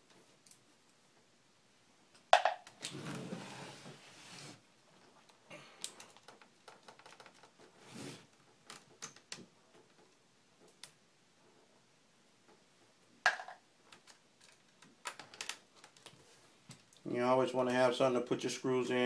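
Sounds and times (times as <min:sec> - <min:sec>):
short scrape: 0:07.8 - 0:08.3.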